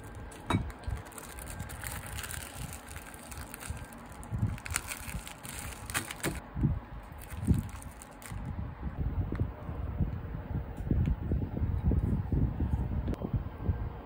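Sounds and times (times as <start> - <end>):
plastic wrapper crinkling: 0.0 - 6.4, 7.1 - 8.5.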